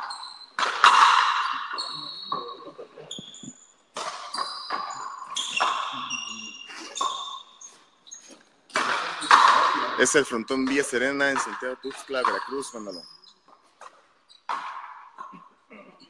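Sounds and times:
ball cracking off rackets and wall: 0:00.6 - 0:01.7, 0:08.7 - 0:09.9.

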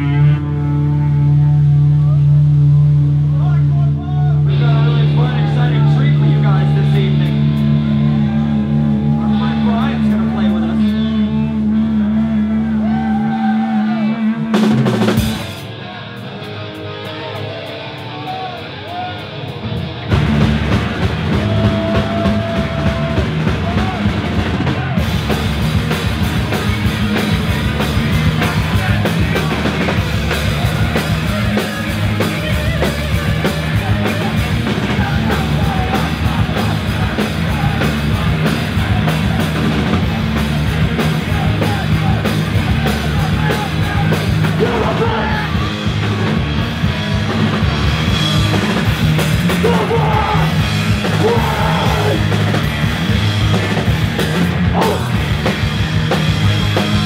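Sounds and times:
punk rock band playing: 0:00.0 - 0:57.0
shouted vocals: 0:03.3 - 0:14.6, 0:15.7 - 0:19.7, 0:21.1 - 0:25.3, 0:28.0 - 0:46.4, 0:49.4 - 0:53.1, 0:53.8 - 0:55.3.

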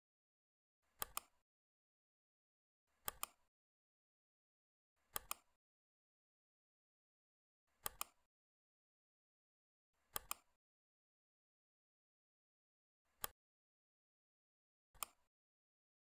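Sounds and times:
computer mouse clicks: 0:01.0 - 0:01.4, 0:02.9 - 0:03.5, 0:05.0 - 0:05.6, 0:07.8 - 0:08.3, 0:10.0 - 0:10.6, 0:13.1 - 0:13.4, 0:15.0 - 0:15.3.

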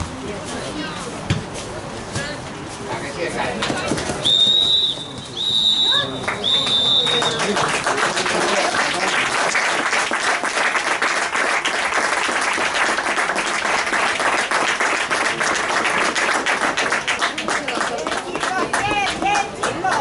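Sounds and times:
crowd applauding: 0:05.8 - 0:20.0.

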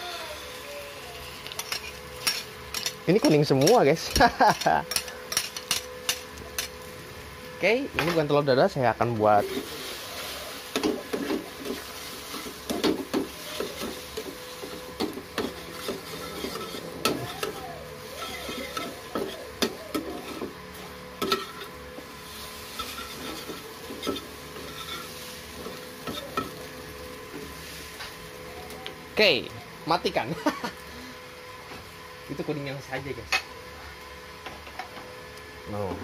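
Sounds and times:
fat sizzling: 0:00.0 - 0:07.4, 0:08.6 - 0:31.2
spatula scraping frying pan: 0:09.4 - 0:20.6, 0:21.2 - 0:26.7.

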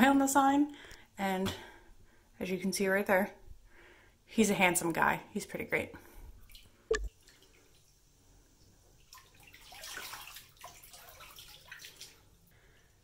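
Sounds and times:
water splashing and dripping: 0:08.6 - 0:12.4
bathwater sloshing: 0:09.0 - 0:12.8.

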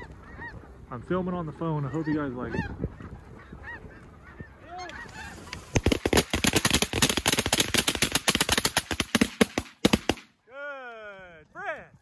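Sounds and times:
geese honking: 0:00.0 - 0:05.9
shotguns firing: 0:05.7 - 0:10.3.

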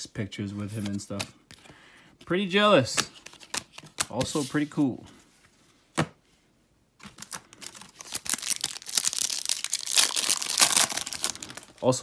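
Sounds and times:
foil wrapper crinkling and tearing: 0:07.0 - 0:12.0.

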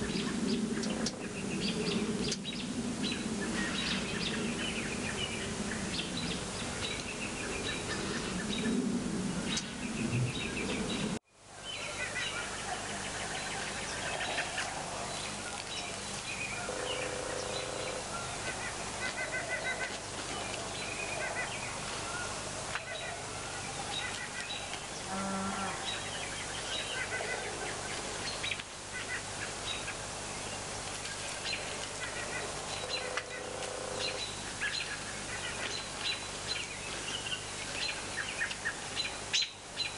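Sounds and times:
birds chirping and calling: 0:00.0 - 0:39.9.

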